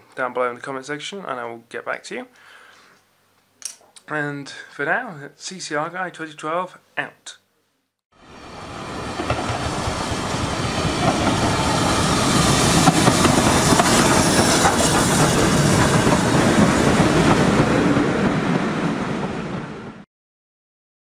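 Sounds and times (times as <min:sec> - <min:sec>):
train rushing past: 0:08.2 - 0:20.0
wheels clattering over rail joints: 0:08.9 - 0:18.3.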